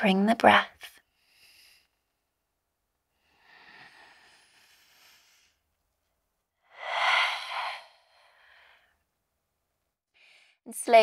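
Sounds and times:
person breathing: 1.1s - 2.2s, 3.1s - 5.7s, 6.6s - 9.1s.

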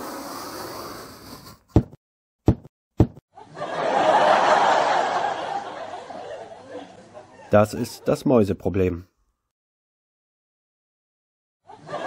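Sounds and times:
sharp knocks: 1.7s - 3.2s.

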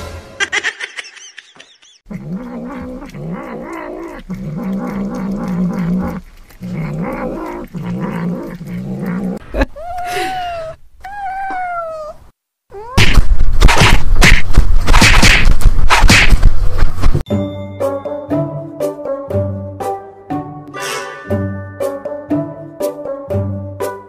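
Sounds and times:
cat growling: 2.1s - 12.2s
cat meowing: 2.2s - 13.0s.

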